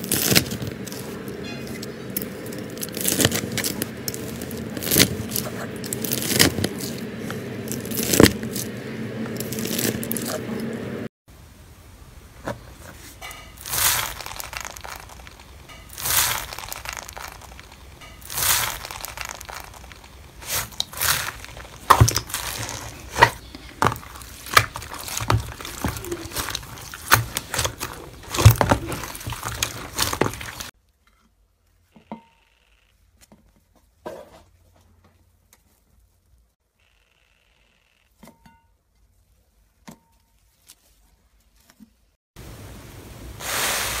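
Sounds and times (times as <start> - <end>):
slime rustling swishes: 12.8 - 30.7
crackles and pops of beaded slime: 13.6 - 30.7.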